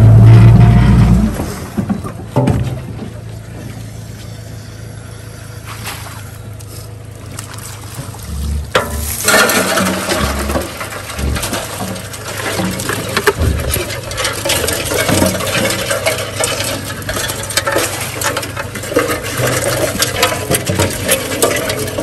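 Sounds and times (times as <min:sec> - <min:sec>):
outboard motor idling: 0:01.4 - 0:22.0
water splashing off a trap: 0:07.2 - 0:21.9.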